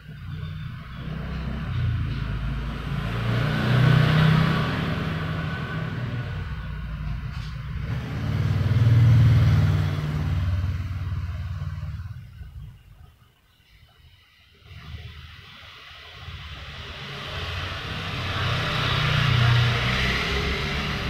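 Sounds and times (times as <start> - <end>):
vehicle engine rumbling: 0.0 - 21.0.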